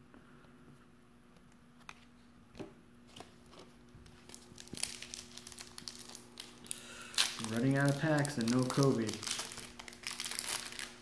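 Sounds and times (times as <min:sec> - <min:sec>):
foil wrapper crinkling: 0:03.1 - 0:11.0.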